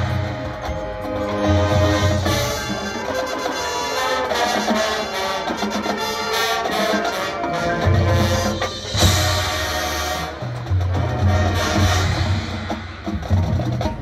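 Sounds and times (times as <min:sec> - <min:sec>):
marching band brass chords: 0:00.0 - 0:14.0.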